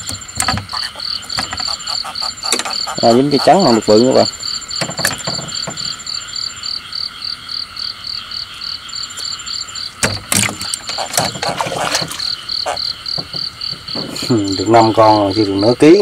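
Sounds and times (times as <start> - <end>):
sharp knocks and clatter: 0.0 - 1.8, 4.8 - 6.0, 10.0 - 12.3, 13.1 - 14.3
frogs calling: 0.0 - 16.0
high insect trill: 0.0 - 16.0.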